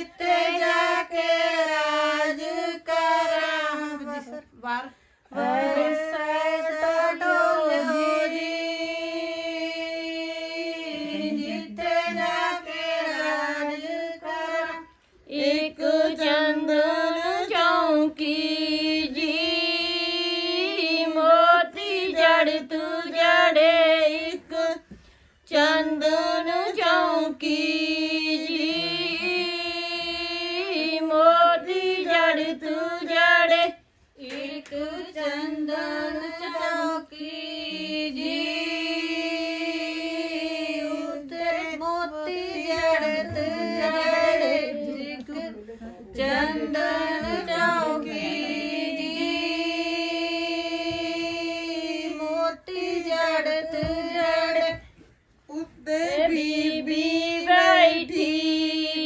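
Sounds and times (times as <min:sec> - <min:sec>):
women singing folk song unaccompanied: 0:00.0 - 0:59.0.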